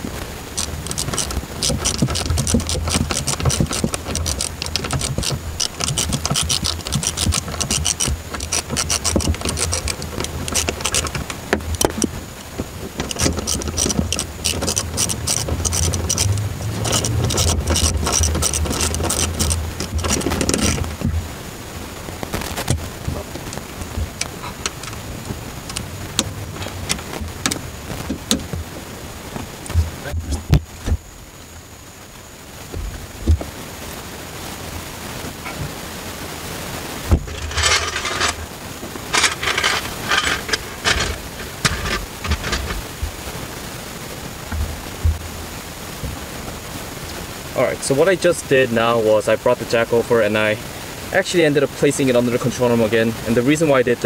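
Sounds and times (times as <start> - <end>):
hand tools clicking and scraping metal: 0.5 - 21.2, 25.6 - 28.6, 37.1 - 38.5, 39.1 - 42.9.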